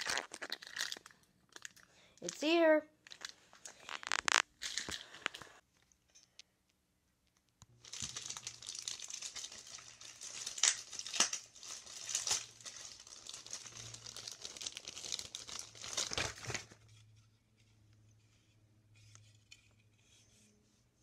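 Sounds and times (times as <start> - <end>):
plastic bag crinkling: 0.0 - 2.4, 3.0 - 5.6, 7.8 - 16.8.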